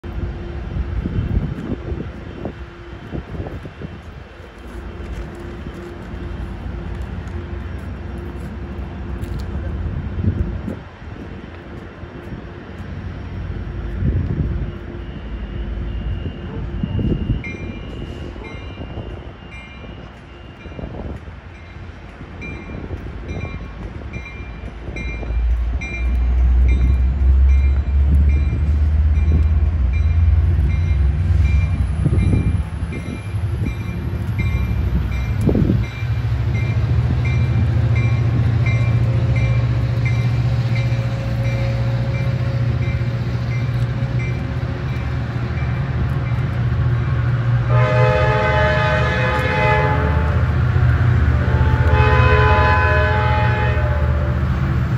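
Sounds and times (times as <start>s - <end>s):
diesel locomotive engine rumble: 0.0s - 54.9s
train horn chord blast: 47.6s - 54.5s.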